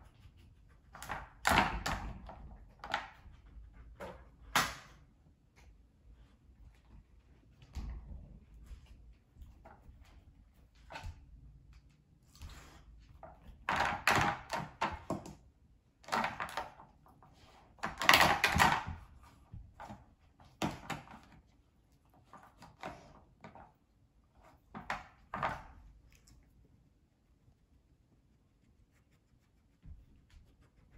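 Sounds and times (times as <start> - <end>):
plastic toys clattering on wood floor: 17.8 - 19.0.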